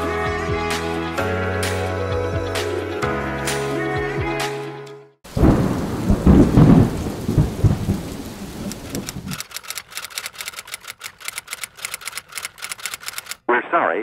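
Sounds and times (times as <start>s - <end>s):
rain-like hiss: 5.3s - 9.4s
rolling thunder-like rumble: 5.3s - 9.4s
laptop keyboard typing: 8.9s - 13.4s.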